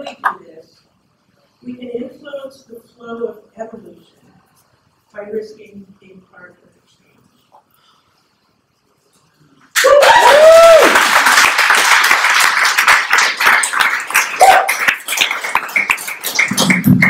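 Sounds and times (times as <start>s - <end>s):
audience clapping: 9.7s - 17.0s
whooping cheers: 9.8s - 11.4s, 14.3s - 14.9s.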